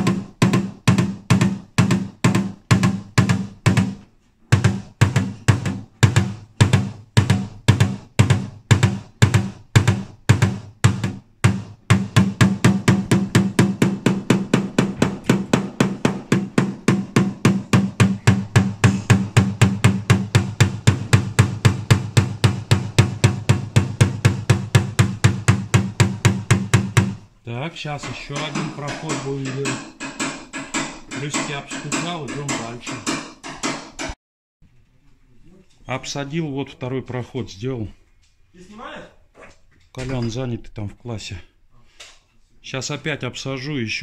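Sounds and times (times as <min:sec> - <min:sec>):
small hammer tapping metal punch: 0:28.0 - 0:34.2.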